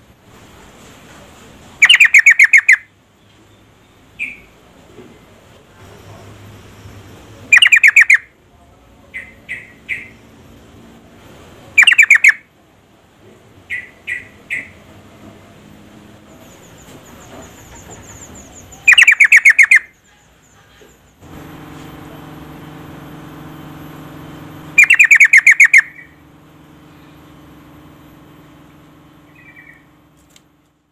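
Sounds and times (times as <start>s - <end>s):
steady low hum: 0.0s - 30.9s
bird rapid chattering calls: 1.8s - 2.9s, 7.5s - 8.3s, 9.1s - 10.2s, 11.8s - 12.4s, 13.7s - 14.8s, 16.4s - 21.2s, 24.8s - 26.2s, 29.3s - 29.9s
bird short three-note chirps: 24.8s - 26.2s.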